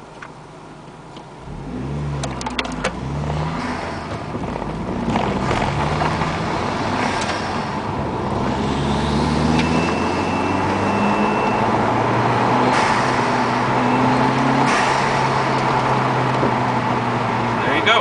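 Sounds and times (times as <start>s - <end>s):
turbocharged car engine accelerating: 1.4s - 18.0s
thin steady turbo whistle: 9.5s - 11.8s.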